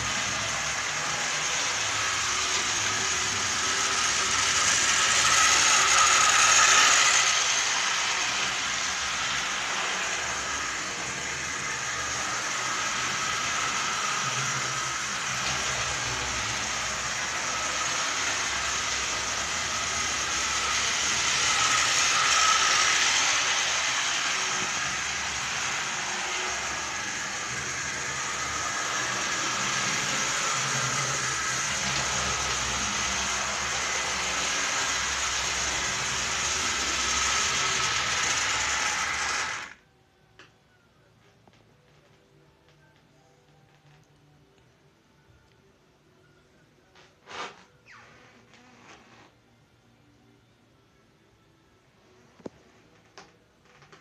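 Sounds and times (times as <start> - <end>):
model train motor whirring: 0.0 - 39.8.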